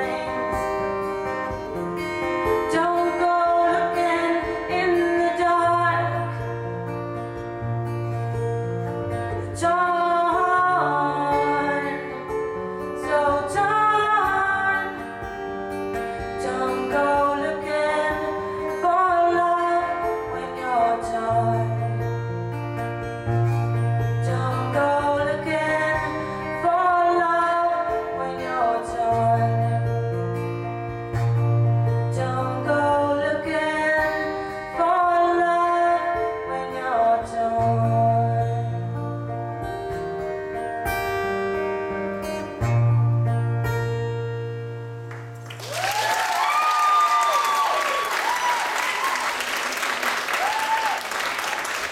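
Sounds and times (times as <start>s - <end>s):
woman singing: 0.0s - 1.4s, 2.4s - 6.5s, 9.3s - 15.3s, 16.2s - 22.0s, 24.2s - 30.0s, 32.0s - 39.1s
acoustic guitar strumming: 0.0s - 45.6s.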